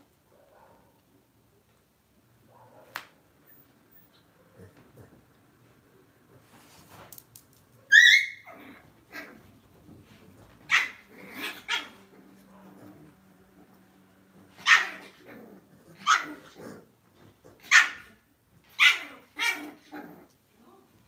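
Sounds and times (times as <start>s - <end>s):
small dogs barking: 2.5s - 3.0s, 10.6s - 13.2s, 14.5s - 16.9s, 17.5s - 20.2s.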